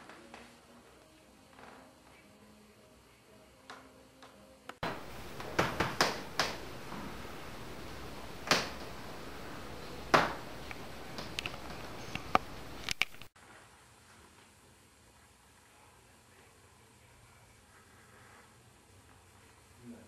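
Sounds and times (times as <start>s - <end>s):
room hiss: 0.0s - 20.0s
sharp clicks and knocks: 4.8s - 13.4s.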